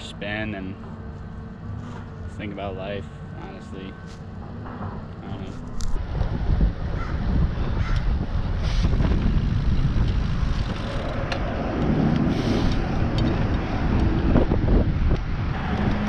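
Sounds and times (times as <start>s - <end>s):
passing street traffic: 0.0s - 16.0s
wind rushing over microphone: 4.5s - 16.0s.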